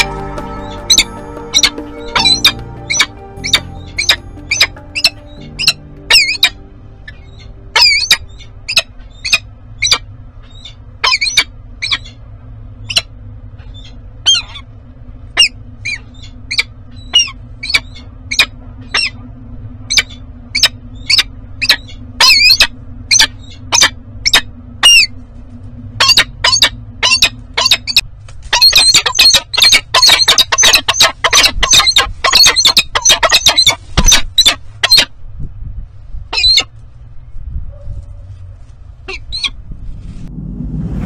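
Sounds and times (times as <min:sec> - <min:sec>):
falcon calling: 0:00.0 - 0:10.0, 0:26.0 - 0:35.1.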